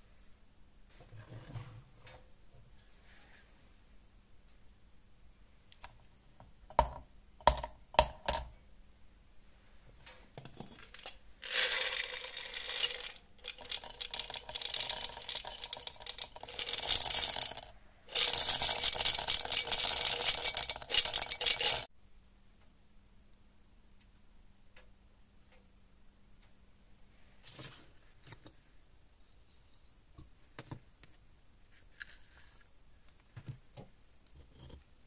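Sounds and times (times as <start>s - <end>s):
steel balls poured into crucible: 10.6s - 21.9s.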